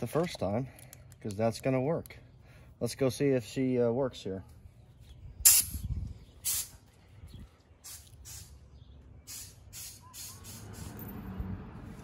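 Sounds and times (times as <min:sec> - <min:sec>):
hissing puffs of air: 0:05.4 - 0:06.9, 0:07.8 - 0:08.6, 0:09.2 - 0:11.0.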